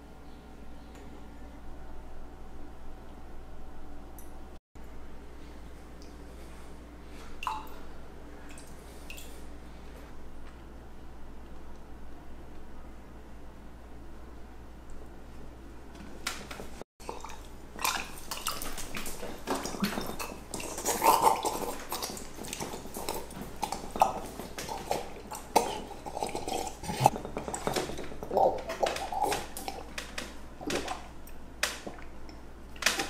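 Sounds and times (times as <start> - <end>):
swallowing gulps: 17.0 - 30.0
mouth clicks and smacks: 17.0 - 33.0.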